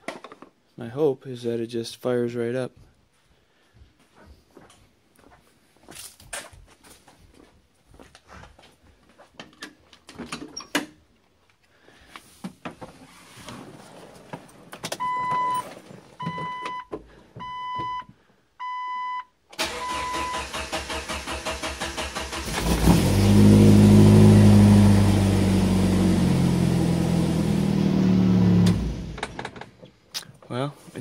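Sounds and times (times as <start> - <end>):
dashboard chime beeping: 15.0 - 15.6
engine cranking on starter: 19.6 - 23.8
car engine running: 22.5 - 29.3.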